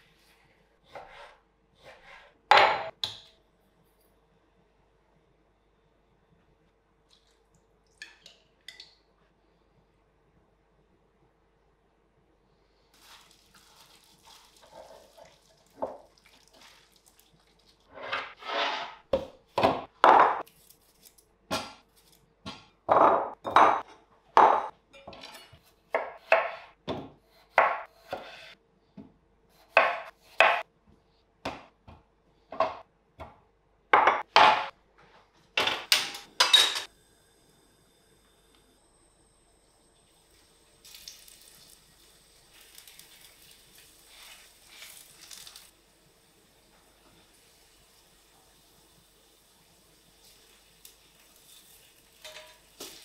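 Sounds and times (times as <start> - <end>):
utensils and dishes clinking: 35.6 - 36.9, 52.2 - 53.0.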